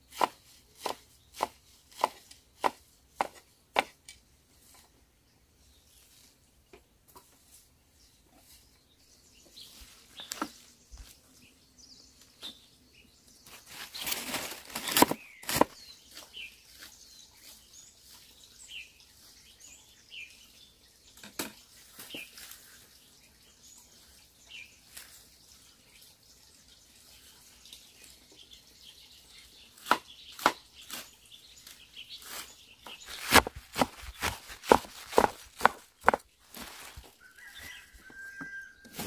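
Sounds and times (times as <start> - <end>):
small birds chirping: 0.0 - 39.0
leaves rustling: 7.3 - 11.4, 13.4 - 19.4, 21.6 - 23.0, 29.7 - 39.0.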